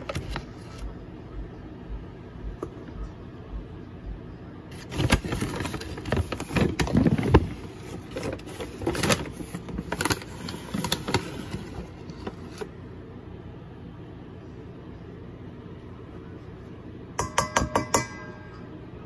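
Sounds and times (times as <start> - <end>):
rustling handling noise: 0.0 - 0.9, 4.7 - 12.7.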